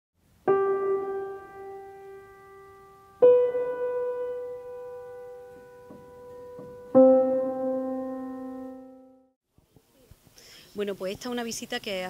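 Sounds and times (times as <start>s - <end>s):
piano notes ringing: 0.4s - 9.4s.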